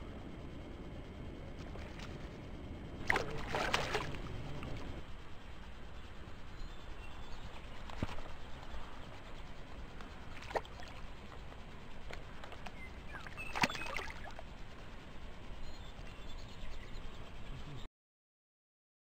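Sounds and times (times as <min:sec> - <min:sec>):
low background noise: 0:00.0 - 0:17.9
fish splashing in water: 0:03.0 - 0:04.9, 0:13.4 - 0:14.4.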